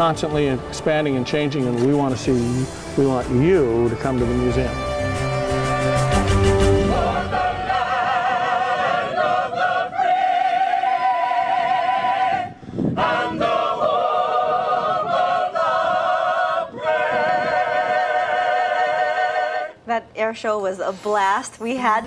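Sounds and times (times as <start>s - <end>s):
mixed choir singing a cappella: 5.8s - 19.8s.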